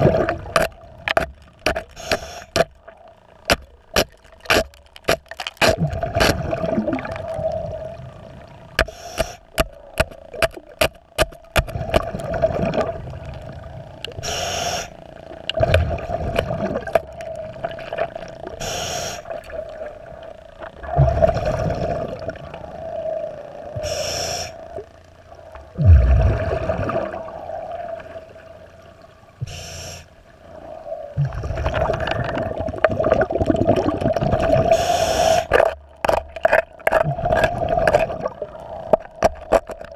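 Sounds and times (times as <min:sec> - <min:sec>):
exhaled bubbles gushing: 0:00.0 - 0:14.3, 0:15.3 - 0:23.9, 0:25.6 - 0:28.4, 0:30.6 - 0:39.9
steady hum: 0:00.0 - 0:39.9
diver breathing through regulator: 0:01.7 - 0:02.6, 0:08.8 - 0:09.8, 0:14.1 - 0:15.0, 0:18.6 - 0:19.4, 0:22.6 - 0:24.8, 0:29.4 - 0:31.1, 0:34.6 - 0:35.6.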